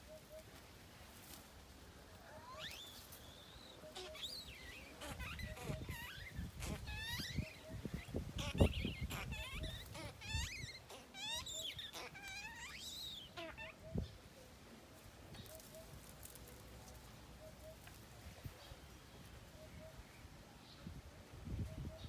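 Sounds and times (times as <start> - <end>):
baby monkey squealing: 2.3 - 14.0.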